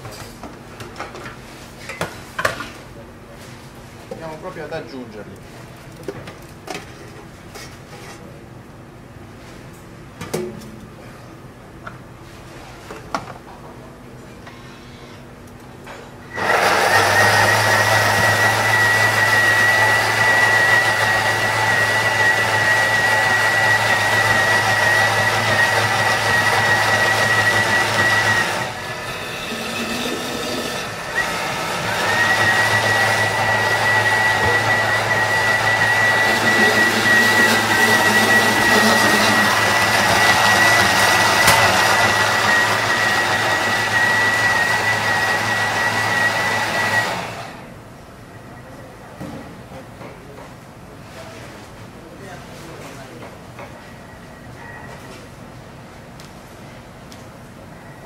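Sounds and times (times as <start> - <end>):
blender motor whining: 16.3 - 47.7.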